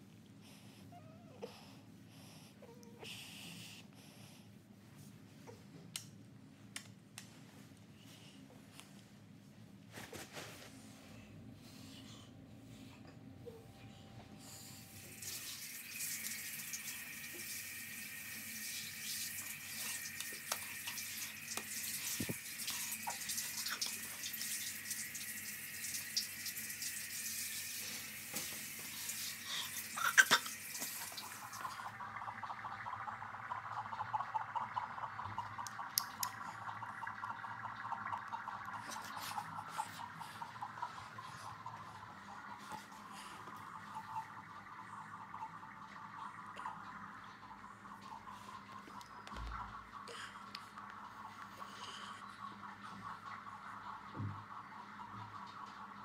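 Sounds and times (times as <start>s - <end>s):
water running: 14.8s - 51.6s.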